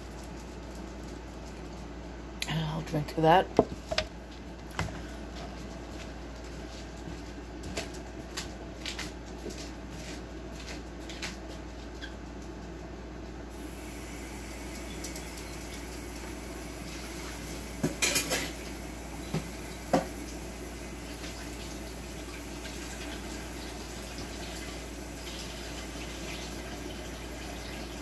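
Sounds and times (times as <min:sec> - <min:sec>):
dishes and cutlery clattering: 0:18.0 - 0:18.6.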